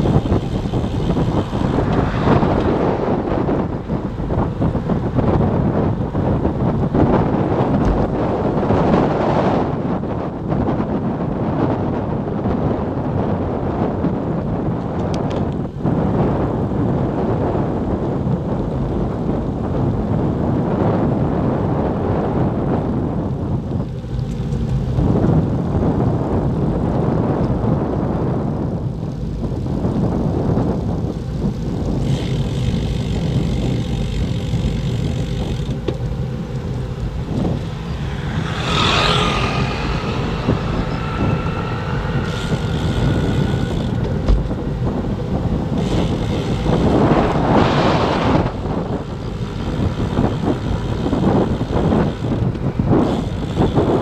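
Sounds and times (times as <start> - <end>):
wind buffeting microphone: 0.0 - 54.0
thin whining tone: 32.1 - 54.0.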